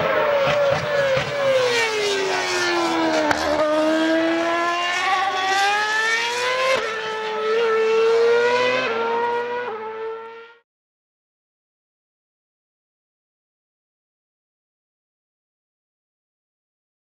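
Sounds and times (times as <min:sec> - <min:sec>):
racing car engine at high revs: 0:00.0 - 0:10.6.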